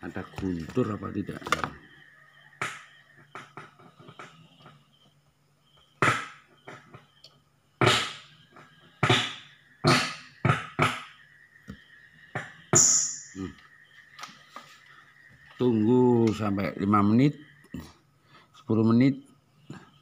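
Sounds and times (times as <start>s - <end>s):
speaker bangs and crackles: 7.8s - 11.2s.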